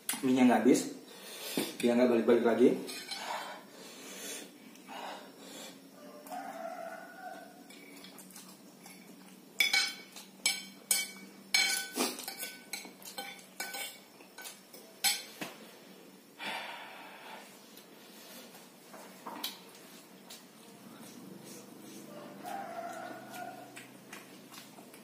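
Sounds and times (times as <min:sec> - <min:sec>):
cutlery clinking on ceramic plate: 0:08.9 - 0:15.3.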